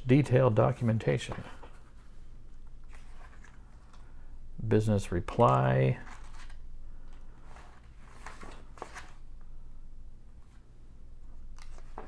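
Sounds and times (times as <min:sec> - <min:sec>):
low steady hum: 0:00.0 - 0:12.0
paper pages turning: 0:02.8 - 0:04.0, 0:06.0 - 0:09.2, 0:11.6 - 0:12.0.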